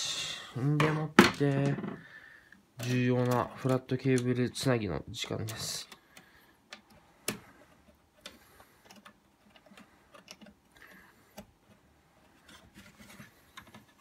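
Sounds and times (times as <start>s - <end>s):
fingers clicking on plastic parts: 2.8s - 4.6s, 5.2s - 14.0s.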